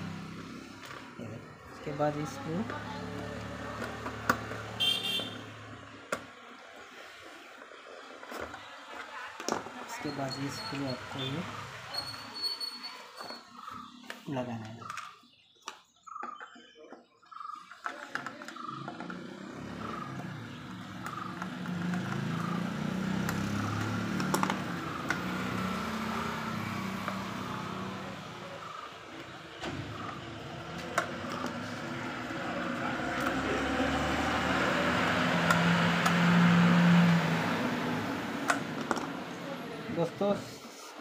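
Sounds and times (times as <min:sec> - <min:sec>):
motor vehicle engine running: 0:18.6 - 0:40.5.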